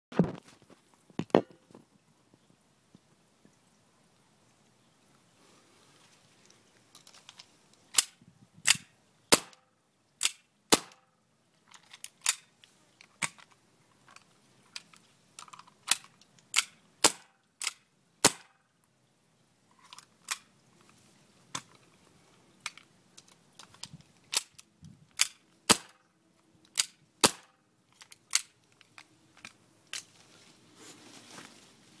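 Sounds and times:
gas pistol shots: 10.2s - 11.0s, 27.2s - 27.5s.

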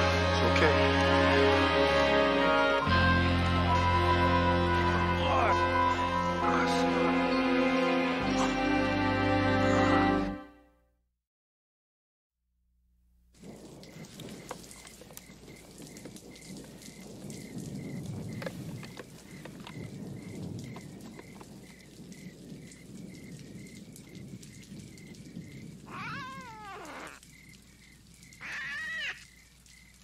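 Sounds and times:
steady rain-like hiss: 0.0s - 10.3s, 13.3s - 30.0s
cat meowing: 25.9s - 27.2s, 28.4s - 29.3s.

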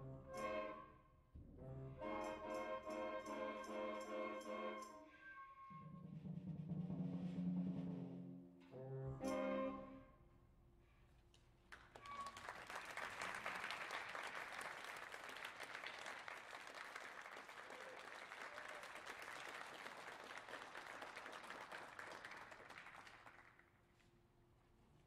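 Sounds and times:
audience applauding: 11.7s - 23.7s.

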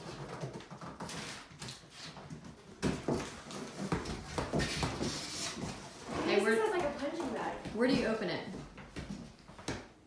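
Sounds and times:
footsteps on wooden floor: 2.6s - 10.0s.

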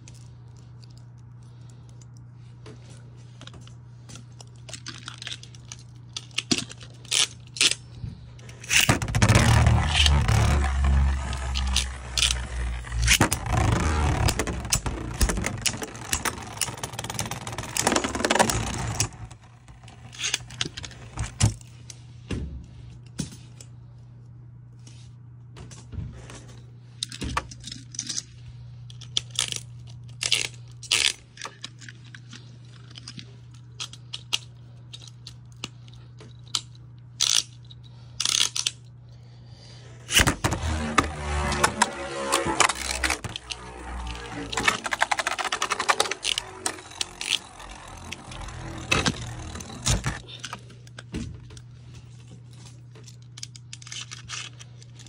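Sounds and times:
low steady hum: 0.0s - 55.0s
spinning top on plastic: 8.5s - 21.4s, 40.1s - 50.4s.

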